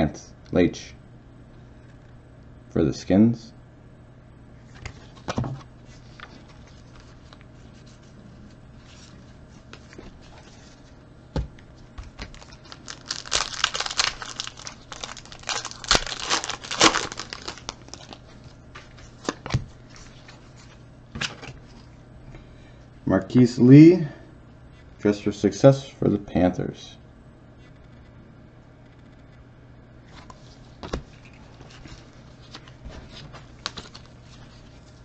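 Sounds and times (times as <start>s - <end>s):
card pack wrapper tearing and crinkling: 12.1s - 18.3s, 30.8s - 34.8s.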